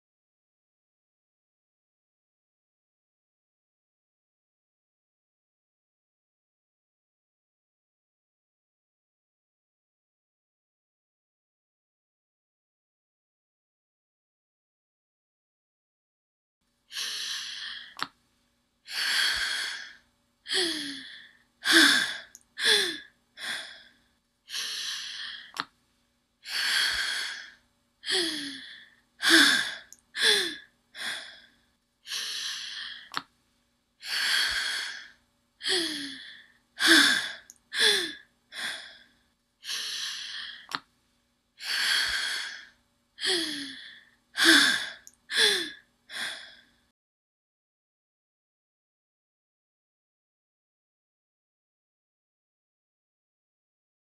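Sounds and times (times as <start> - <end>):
person breathing heavily and gasping: 16.9 - 18.1, 18.9 - 25.6, 26.4 - 33.2, 34.0 - 40.8, 41.6 - 46.9.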